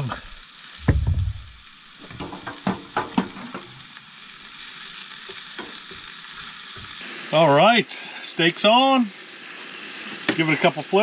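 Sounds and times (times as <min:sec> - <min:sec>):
steak sizzling: 0:00.0 - 0:11.0
vegetables frying in oil: 0:00.0 - 0:11.0
low thump: 0:00.8 - 0:01.6
utensils knocking against pan: 0:02.0 - 0:03.8.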